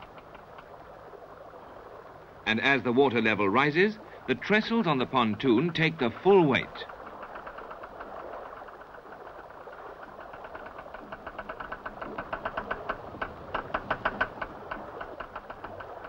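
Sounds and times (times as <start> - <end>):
winch machinery clattering: 4.3 - 16.0.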